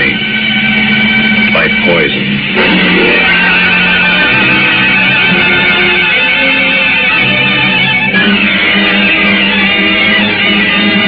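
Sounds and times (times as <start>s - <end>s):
dramatic radio music bridge: 0.0s - 11.0s.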